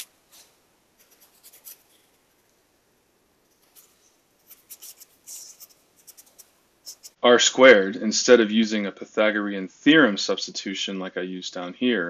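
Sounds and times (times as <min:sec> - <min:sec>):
marker scratching on paper: 0:00.0 - 0:02.2, 0:03.6 - 0:07.2.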